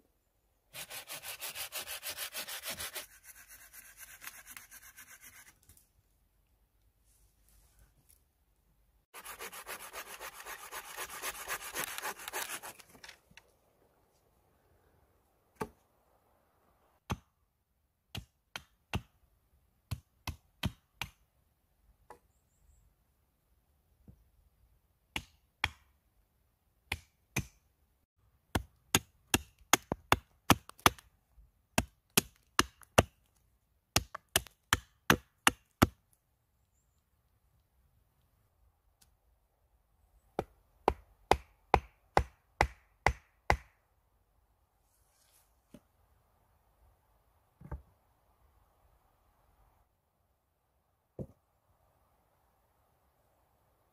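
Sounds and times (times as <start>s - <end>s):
scraping of dry wood: 9.2s - 13.3s
hatchet chopping wood: 15.6s - 15.8s, 17.0s - 17.4s, 18.1s - 19.2s, 19.9s - 21.2s, 25.1s - 25.9s, 26.9s - 27.6s, 28.5s - 31.1s, 31.7s - 33.2s, 33.9s - 36.0s, 40.4s - 43.8s.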